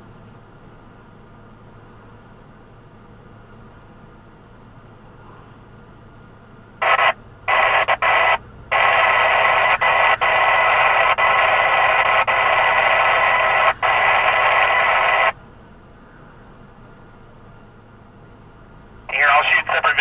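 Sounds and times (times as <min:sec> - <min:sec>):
radio static hiss: 0:06.8 - 0:15.4, 0:19.1 - 0:20.0.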